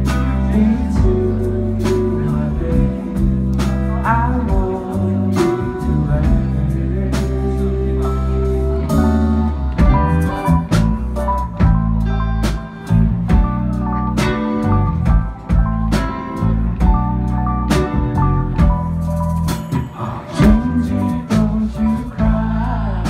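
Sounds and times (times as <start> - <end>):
person singing: 0.0 - 10.9, 19.7 - 23.0
live band playing: 0.0 - 23.0.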